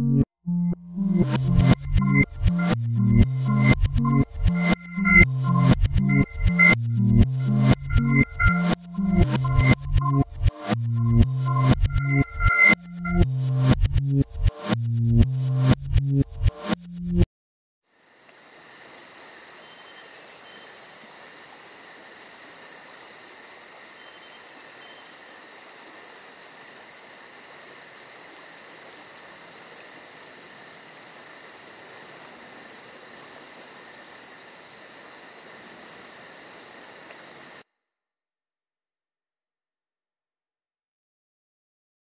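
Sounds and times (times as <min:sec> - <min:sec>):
insects trilling: 0:17.9 - 0:37.6.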